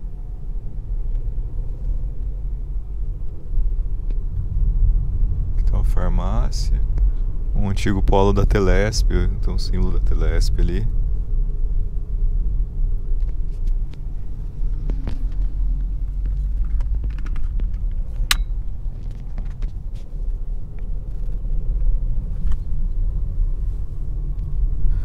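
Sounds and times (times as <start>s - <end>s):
car engine and tyre rumble: 0.0s - 25.0s
sharp click: 18.2s - 18.5s.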